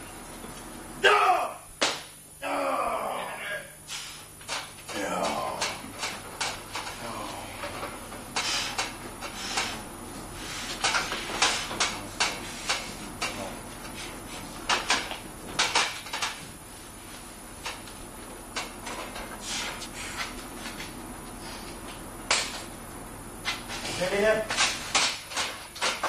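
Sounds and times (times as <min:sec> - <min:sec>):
sharp knocks and clatter: 0:14.6 - 0:16.5, 0:24.4 - 0:26.0.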